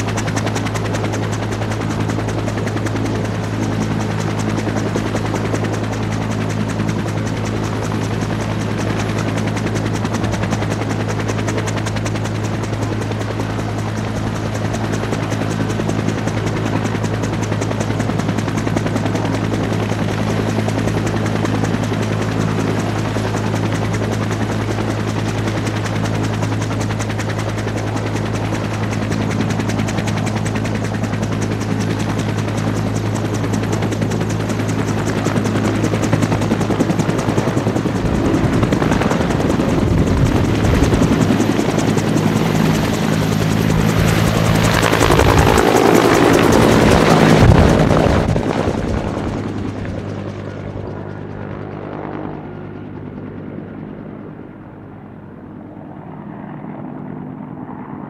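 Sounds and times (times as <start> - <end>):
helicopter rotor chop: 0.0 - 58.0
high turbine whine: 33.1 - 54.7.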